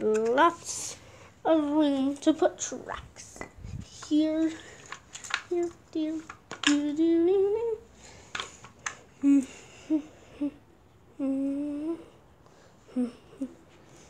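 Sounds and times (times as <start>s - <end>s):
person humming: 9.2s - 12.2s, 12.9s - 13.6s.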